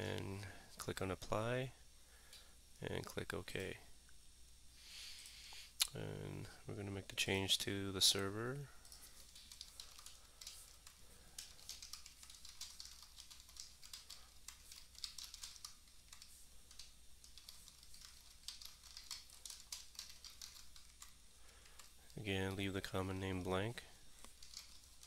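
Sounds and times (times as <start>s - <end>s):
keyboard typing: 8.8s - 22.6s, 24.2s - 25.0s.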